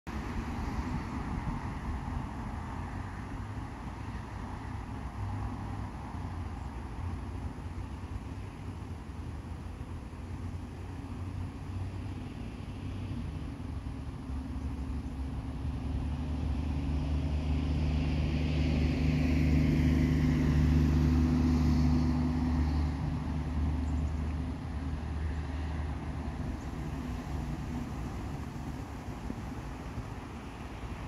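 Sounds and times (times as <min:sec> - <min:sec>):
vehicle passing by: 0:11.0 - 0:31.0.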